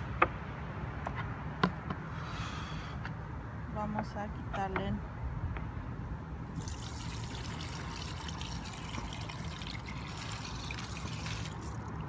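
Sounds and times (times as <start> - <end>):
rice water pouring into colander: 6.5 - 12.0.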